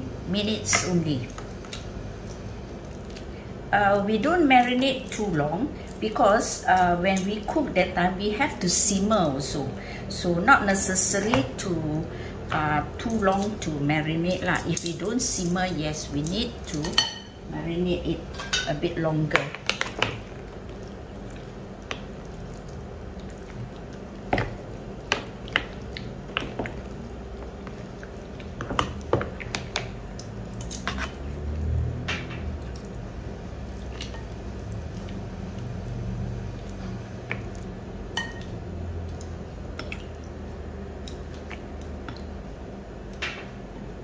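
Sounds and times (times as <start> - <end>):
steady low hum: 0.0 - 44.0
wet squishing of chicken in paste: 19.6 - 33.0, 33.6 - 37.7, 38.4 - 42.6.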